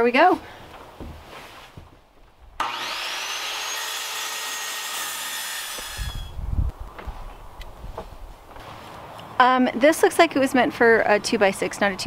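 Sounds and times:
circular saw cutting wood: 2.6 - 6.3.

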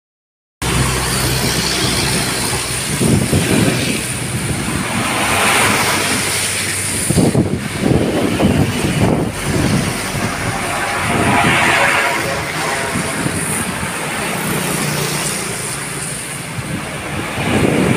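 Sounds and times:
deep engine rumble: 0.6 - 14.9
trucks passing on wet road: 0.6 - 17.9
tyres hissing on wet road: 0.6 - 17.9.

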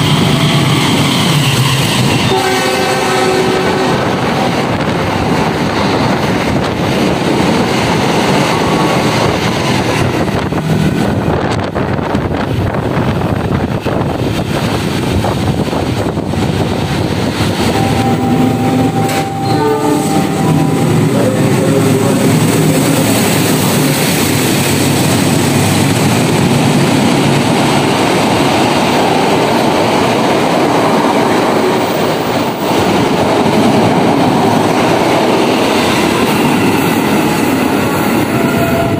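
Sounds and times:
train wheels on rails: 0.0 - 38.9
locomotive horn: 2.1 - 4.2, 17.6 - 23.7, 38.2 - 38.9.

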